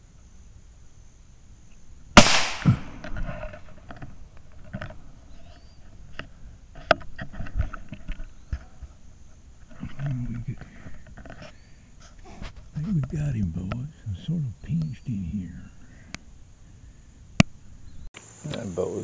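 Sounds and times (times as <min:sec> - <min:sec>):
rifle shot: 0:02.2 - 0:03.2.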